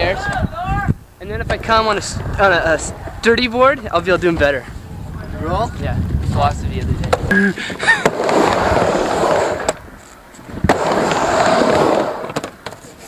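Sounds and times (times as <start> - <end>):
skateboard wheels rolling: 1.3 - 13.0
skateboard clacking: 7.0 - 9.8, 10.6 - 13.0.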